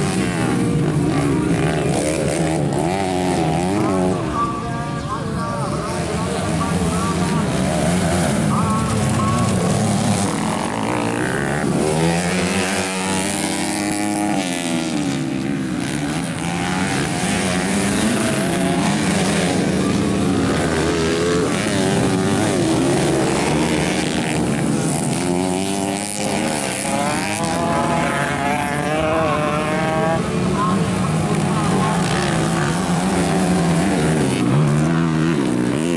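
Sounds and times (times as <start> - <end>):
dirt bike engines revving: 0.0 - 35.9.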